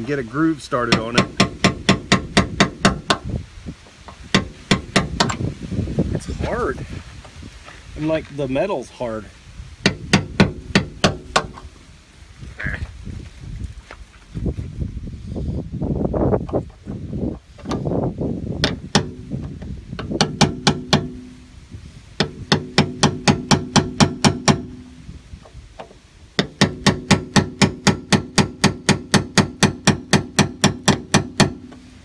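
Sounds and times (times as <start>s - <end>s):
hammer tapping chisel on metal: 20.0s - 21.3s, 22.2s - 24.8s.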